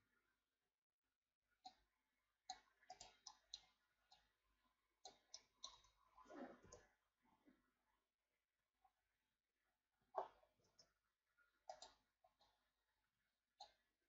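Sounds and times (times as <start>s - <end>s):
keyboard and mouse clicks: 2.5s - 4.3s, 11.7s - 12.0s.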